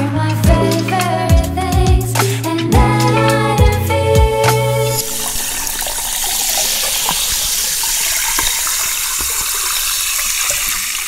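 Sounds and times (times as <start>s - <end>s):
music track: 0.0s - 5.4s
liquid pouring into a glass: 4.9s - 11.0s.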